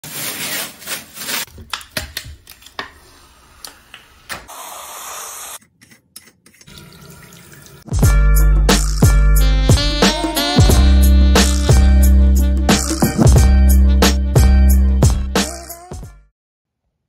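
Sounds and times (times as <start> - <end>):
faucet water running into sink: 6.7 - 8.0
loud music with a beat: 8.0 - 16.2.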